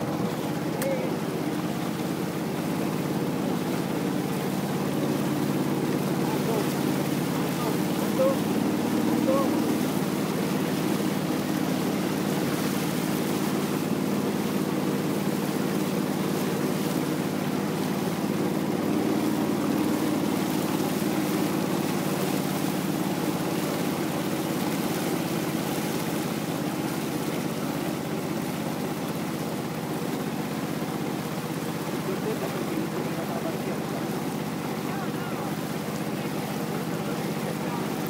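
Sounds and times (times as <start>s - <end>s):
boat engine humming: 0.0s - 38.0s
water rushing: 0.0s - 38.0s
wind: 0.0s - 38.0s.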